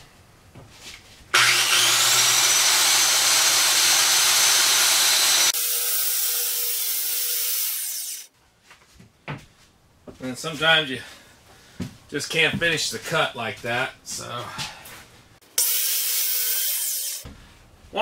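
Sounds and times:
circular saw cutting plywood: 1.3 - 8.3, 15.6 - 17.3.

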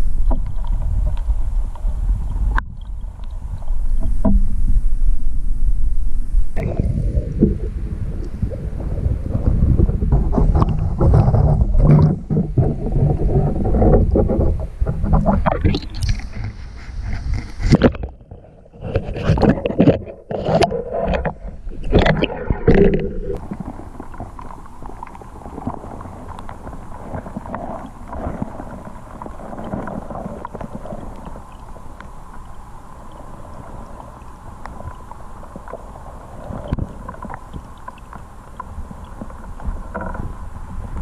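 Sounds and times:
muffled underwater stream rush: 0.0 - 41.0
splashes and knocks: 17.2 - 28.6
faint clicks: 29.2 - 40.3.

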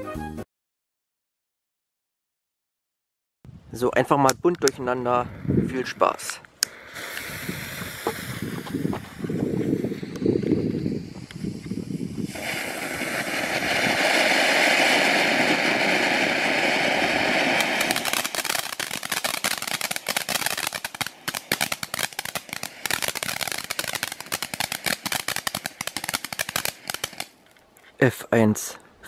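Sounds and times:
firework crackling: 5.8 - 27.5
firework fountain hissing: 5.9 - 27.4.

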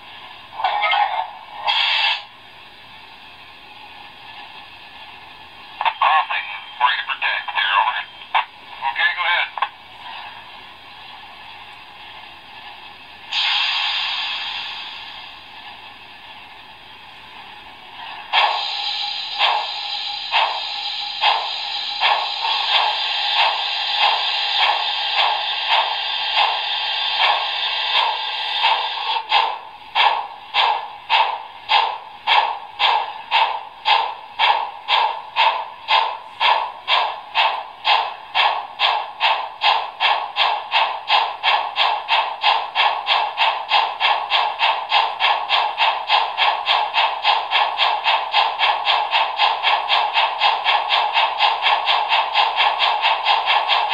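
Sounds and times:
steam locomotive exhaust chuffs: 0.0 - 53.9
steam hiss from small speaker: 13.3 - 15.6, 18.1 - 30.8.

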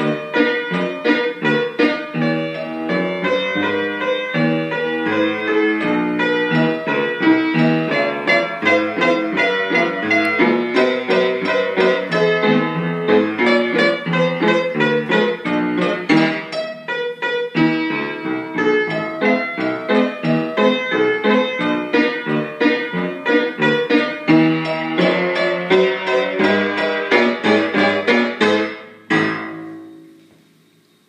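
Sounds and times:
upright piano played four hands: 0.0 - 31.0.

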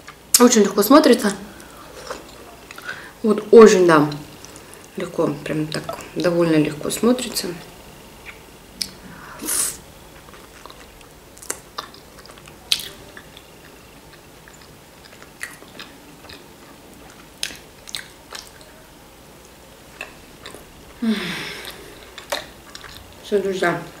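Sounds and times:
mouth clicks and smacks: 8.2 - 9.0, 10.2 - 13.4, 17.0 - 18.7
person chewing pastry: 8.2 - 18.8, 19.4 - 23.2.

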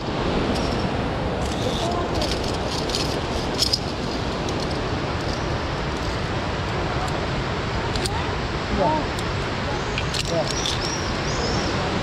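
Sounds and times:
steady rushing noise: 0.0 - 12.0
metal gear clinking on steel cable: 0.5 - 6.2, 10.0 - 11.1.

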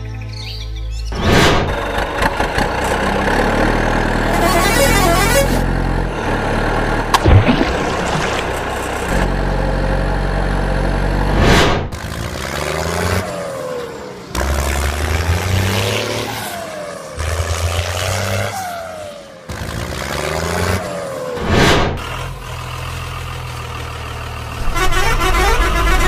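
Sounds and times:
tractor engine revving: 1.2 - 18.6, 19.5 - 26.0
water splashing: 7.1 - 9.2.

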